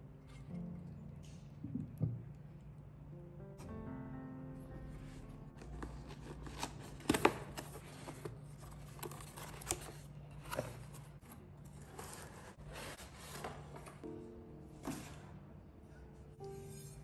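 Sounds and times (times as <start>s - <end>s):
cardboard scraping and rustling: 5.6s - 14.1s.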